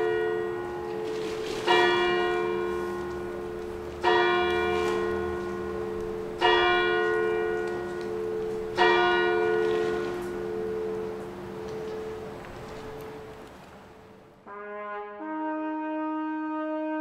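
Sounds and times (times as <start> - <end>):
bell tolling: 0.0 - 13.3.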